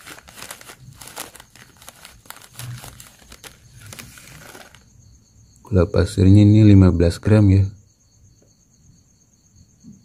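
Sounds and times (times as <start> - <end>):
plastic bag crinkling: 0.0 - 4.9.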